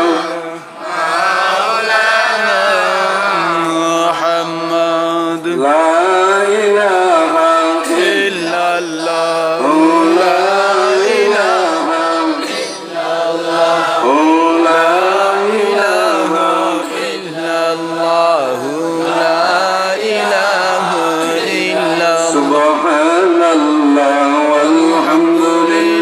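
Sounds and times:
man chanting into a microphone: 0:00.0 - 0:00.9, 0:01.6 - 0:26.0.

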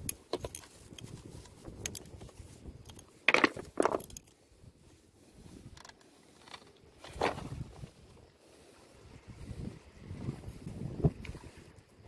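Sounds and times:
small clicks and rattles: 0:00.0 - 0:04.4, 0:05.7 - 0:07.2.

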